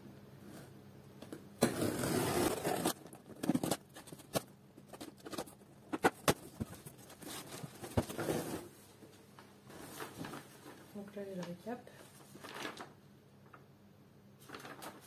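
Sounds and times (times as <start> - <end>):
box cutter scraping cardboard: 1.6 - 3.8
tape ripped off cardboard box: 1.6 - 3.8.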